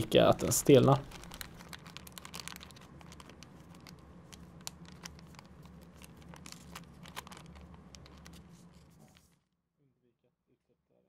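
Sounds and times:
plastic bag crinkling: 0:00.7 - 0:09.4.

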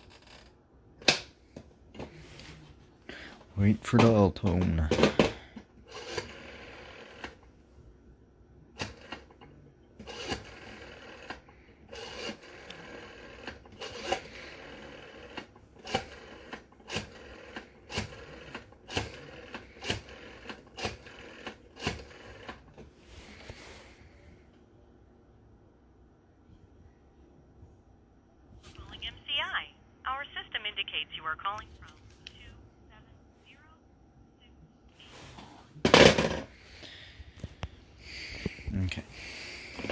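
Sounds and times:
rotary dial whirring and clicking: 0:04.0 - 0:07.5, 0:08.8 - 0:22.9.

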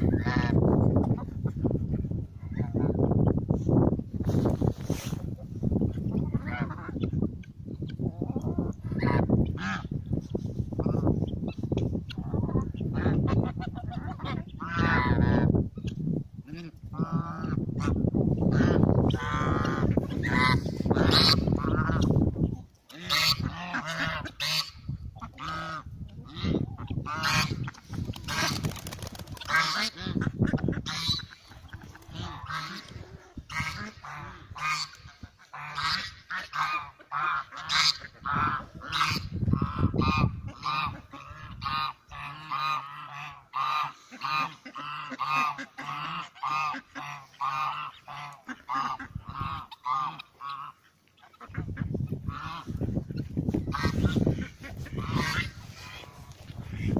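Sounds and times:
geese honking: 0:22.9 - 0:28.7, 0:29.4 - 0:52.9, 0:53.5 - 0:56.9.

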